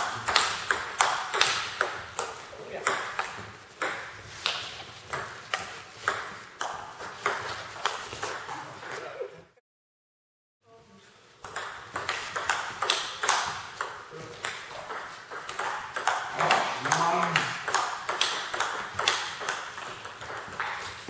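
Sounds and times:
table tennis ball clicking: 0:11.4 - 0:20.8.

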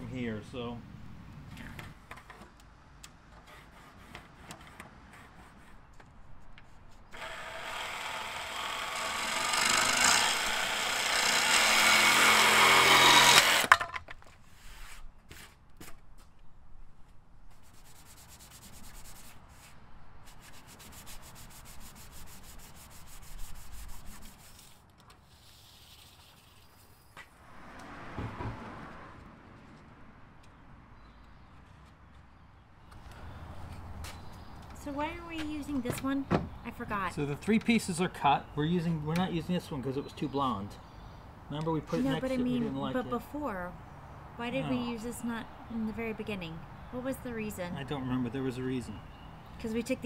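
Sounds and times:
jigsaw cutting wood: 0:07.1 - 0:13.8.

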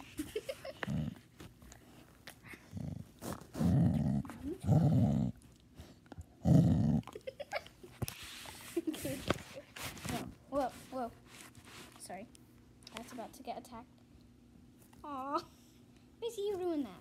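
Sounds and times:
dog growling: 0:00.7 - 0:01.3, 0:02.5 - 0:07.3.

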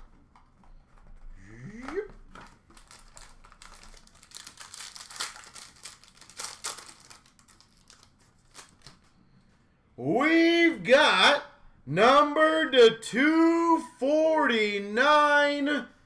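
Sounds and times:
foil wrapper crinkling: 0:02.3 - 0:09.2.

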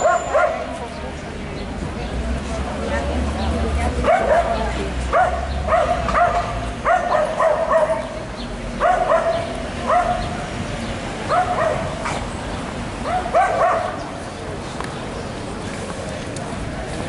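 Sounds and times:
dog yelping: 0:04.0 - 0:08.2, 0:08.8 - 0:10.3, 0:11.3 - 0:12.0, 0:13.0 - 0:14.0.

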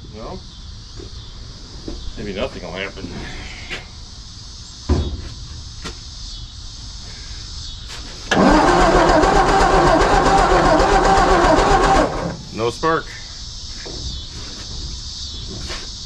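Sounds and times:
thump: 0:04.9 - 0:06.0
engine cranking without starting: 0:08.3 - 0:12.6.

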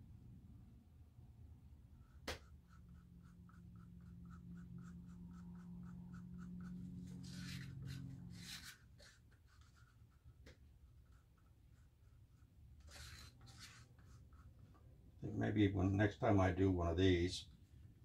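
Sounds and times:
low steady hum: 0:00.0 - 0:18.0
stick scraping plastic strainer: 0:12.8 - 0:14.3.

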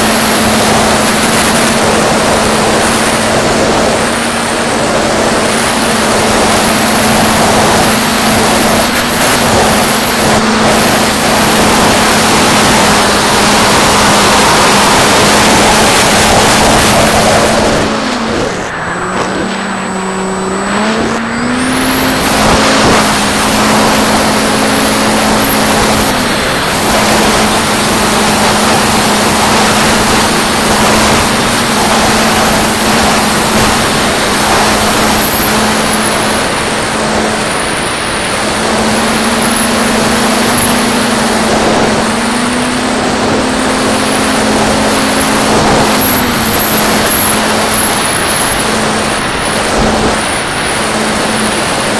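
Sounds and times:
thin high whine: 0:00.0 - 0:51.9
wind rush: 0:00.0 - 0:51.9.

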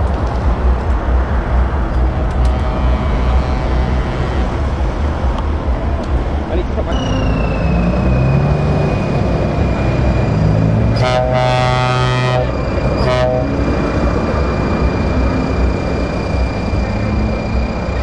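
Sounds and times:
diesel truck engines rumbling: 0:00.0 - 0:18.0
thin high whine: 0:01.9 - 0:18.0
lorry air horn: 0:02.4 - 0:05.0, 0:10.9 - 0:13.6.

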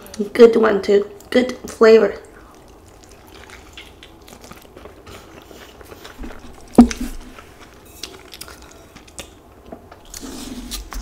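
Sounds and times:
chewing with wet mouth clicks: 0:01.1 - 0:10.2
food thumping on wooden board: 0:06.2 - 0:07.3.

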